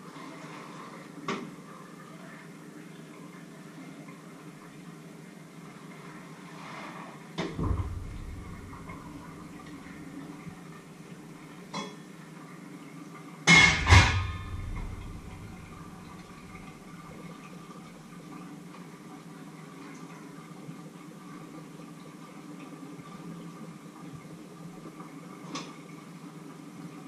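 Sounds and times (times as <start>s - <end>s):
metal pots clanking: 7.6s - 10.0s, 13.5s - 16.9s.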